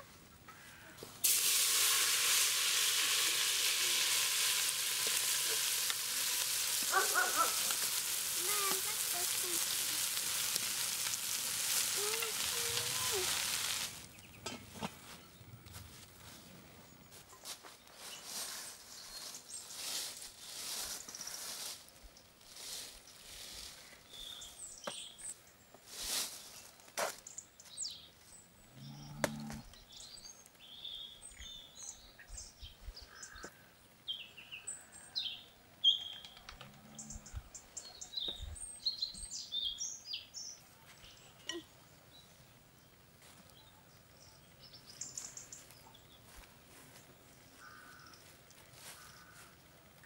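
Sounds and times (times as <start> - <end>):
hands rustling in bowl of flour: 2.2 - 14.2
birds chirping and calling: 6.8 - 10.1.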